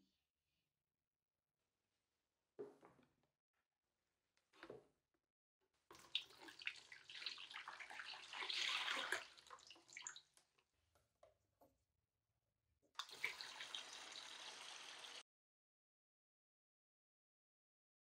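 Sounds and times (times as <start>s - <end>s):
hose water running into tub: 5.9s - 10.2s, 13.0s - 15.2s
liquid pouring and splashing: 5.9s - 10.4s, 13.0s - 15.2s.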